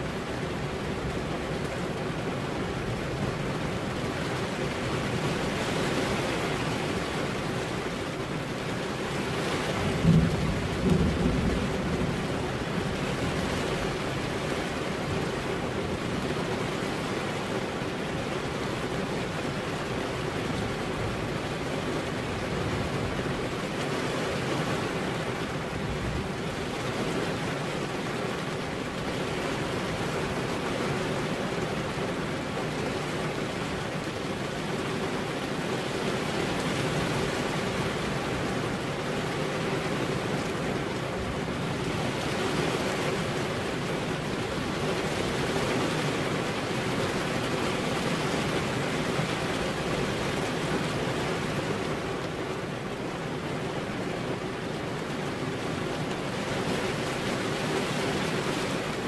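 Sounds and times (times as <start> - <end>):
steady rain: 0.0 - 59.0
thunder crack and rumble: 9.6 - 15.2.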